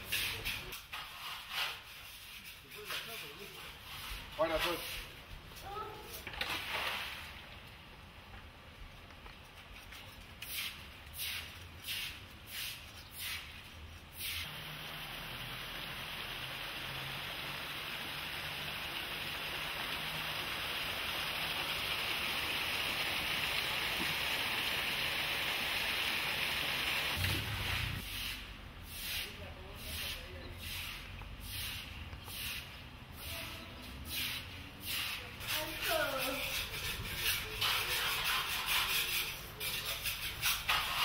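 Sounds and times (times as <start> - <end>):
broom sweeping wet concrete: 0.0 - 7.4, 9.6 - 14.5, 27.2 - 41.0
water spraying and splashing: 6.0 - 7.6, 10.3 - 41.0.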